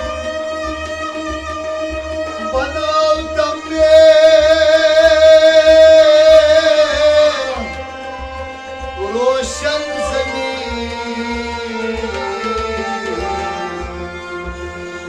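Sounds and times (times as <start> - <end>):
hand drum: 0.0 - 15.0
harmonium: 0.0 - 15.0
plucked lute: 0.0 - 15.0
man singing: 2.4 - 8.2, 8.9 - 14.1.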